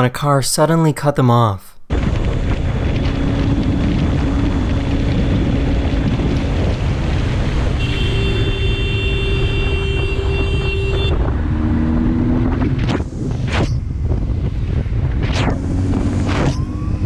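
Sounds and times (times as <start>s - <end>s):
motorcycle running noise: 1.9s - 17.0s
wind rush: 1.9s - 17.0s
car horn: 7.7s - 11.3s.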